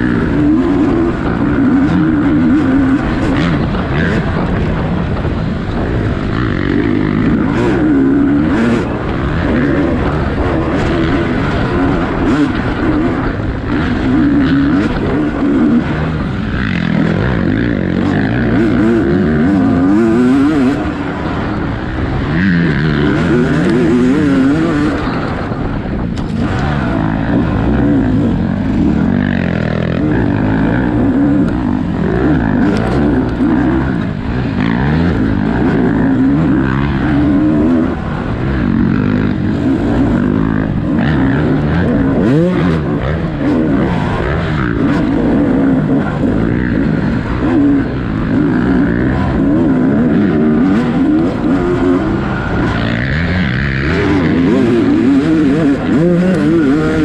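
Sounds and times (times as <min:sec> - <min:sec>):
dirt bike engine revving: 0:00.0 - 0:57.0
trail clatter: 0:00.0 - 0:57.0.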